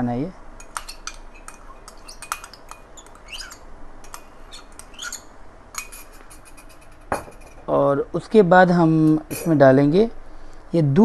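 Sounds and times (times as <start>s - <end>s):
spoon scraping a small bowl: 0.6s - 7.6s.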